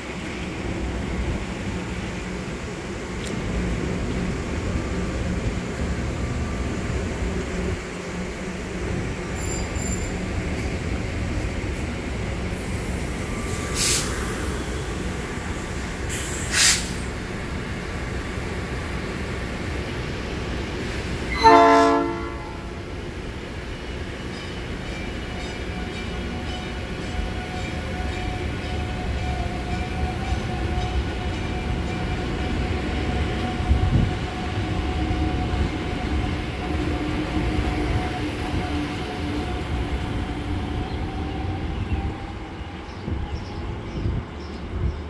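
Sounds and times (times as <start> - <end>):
train low rumble: 0.0 - 45.0
brief hisses: 13.4 - 14.4, 16.1 - 17.1
train horn blast: 21.3 - 22.8.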